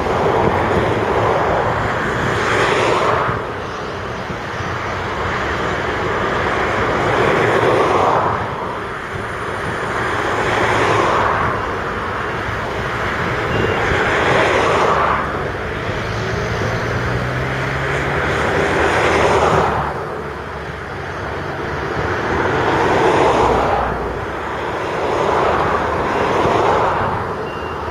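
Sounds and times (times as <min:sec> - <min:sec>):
diesel engines under load: 0:00.0 - 0:27.9
faint reversing beeps: 0:13.5 - 0:14.0, 0:27.4 - 0:27.9.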